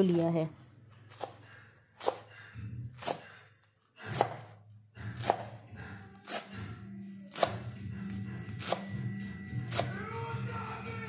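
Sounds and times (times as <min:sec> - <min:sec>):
knife chopping on cutting board: 0:01.1 - 0:01.4, 0:02.0 - 0:02.4, 0:03.0 - 0:03.4, 0:04.0 - 0:05.6, 0:06.2 - 0:06.7, 0:07.3 - 0:07.7, 0:08.6 - 0:09.0.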